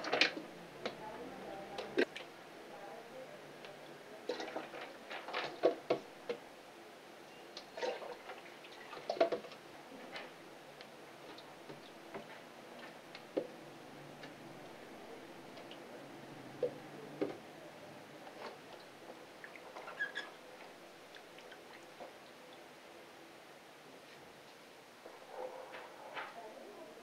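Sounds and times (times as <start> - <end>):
water pouring into aquarium: 4.3 - 5.8
splashes and clicks: 4.3 - 6.4.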